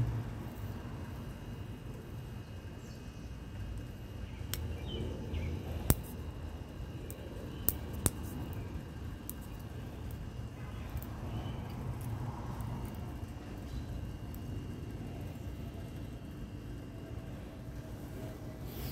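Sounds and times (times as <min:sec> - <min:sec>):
pressure stove burner rumble: 0:00.0 - 0:18.9
sharp clicks: 0:04.4 - 0:04.8, 0:07.0 - 0:08.6.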